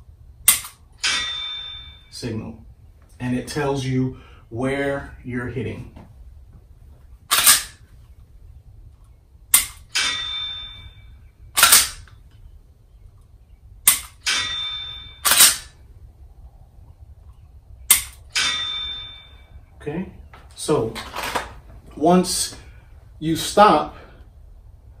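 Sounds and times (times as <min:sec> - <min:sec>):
pistol trigger clicks: 0:00.5 - 0:00.8, 0:17.9 - 0:18.2
pistol slide clacks: 0:07.3 - 0:07.8, 0:11.6 - 0:12.2, 0:15.2 - 0:15.7, 0:17.9 - 0:18.2.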